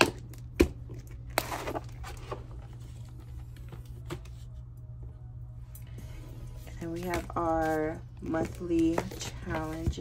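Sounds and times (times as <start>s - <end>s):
steady low hum: 0.0s - 10.0s
paper rustling: 6.9s - 10.0s.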